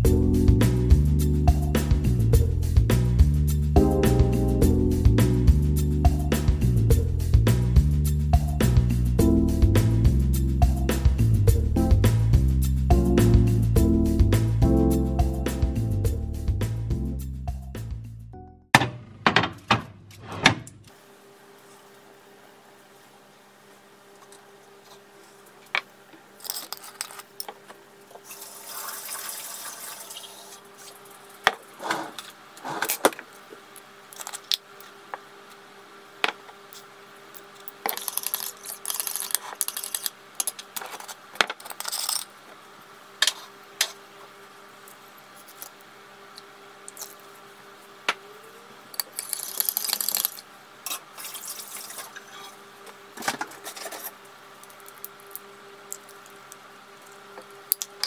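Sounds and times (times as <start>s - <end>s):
faint steady hum: 18.3s - 58.0s
water pouring: 28.3s - 30.6s.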